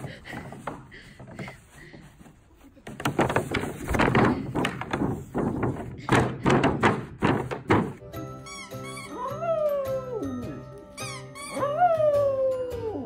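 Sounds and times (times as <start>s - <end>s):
hollow plastic thunks and knocks: 2.8s - 8.0s.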